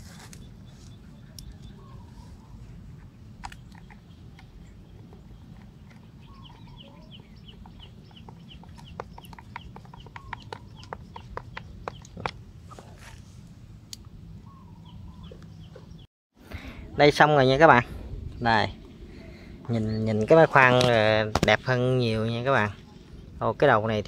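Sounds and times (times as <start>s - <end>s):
bird chirping: 0.0s - 2.8s, 3.4s - 13.0s, 14.4s - 16.1s
low steady hum: 0.0s - 24.0s.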